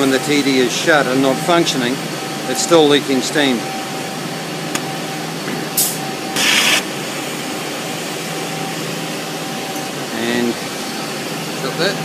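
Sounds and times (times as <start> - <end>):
steam blasts: 5.8 - 7.4
steam hissing: 5.8 - 7.6.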